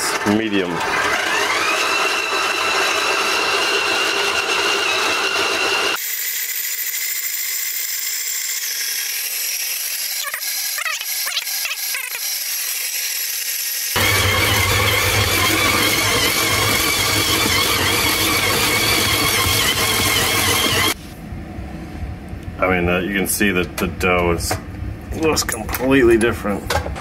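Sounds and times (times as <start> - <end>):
stand mixer motor whine: 0.0 - 21.0.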